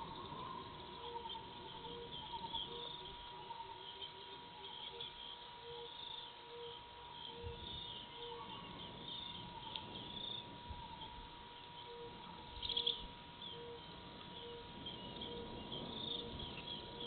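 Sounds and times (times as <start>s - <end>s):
birds chirping: 0.0s - 17.0s
insects chirping: 0.0s - 17.0s
thin steady tone: 0.0s - 17.0s.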